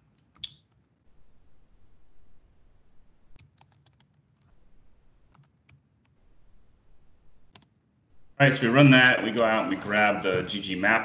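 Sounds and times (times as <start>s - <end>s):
faint keyboard typing: 0.0s - 1.1s, 3.3s - 6.2s, 7.4s - 7.8s.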